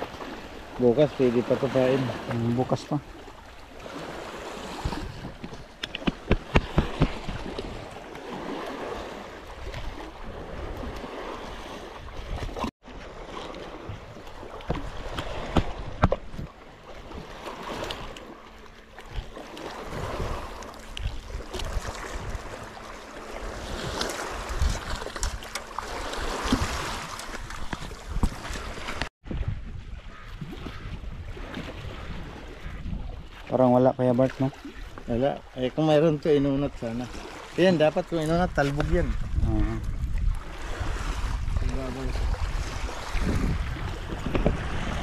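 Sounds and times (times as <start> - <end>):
sea waves lapping on rocks: 0.0 - 29.5, 30.1 - 45.0
wind buffeting microphone: 3.8 - 12.7, 19.0 - 33.6, 37.8 - 45.0.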